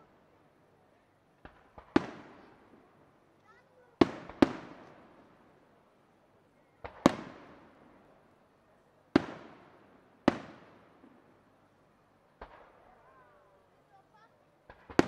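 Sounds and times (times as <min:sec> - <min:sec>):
firework bangs echoing: 0:01.4 - 0:02.8, 0:04.0 - 0:05.2, 0:06.8 - 0:07.7, 0:10.3 - 0:11.2, 0:12.4 - 0:13.0.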